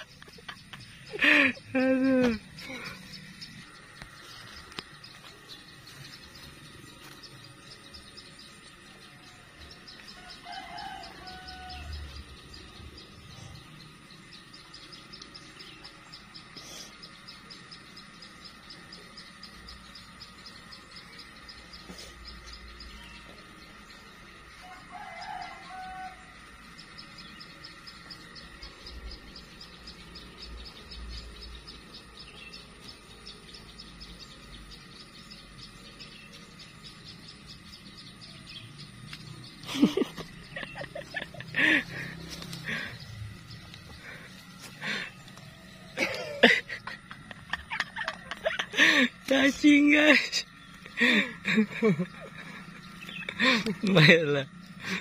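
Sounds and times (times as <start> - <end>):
insects chirping: 0.0 - 55.0
rooster crowing: 9.2 - 12.6, 24.3 - 27.0.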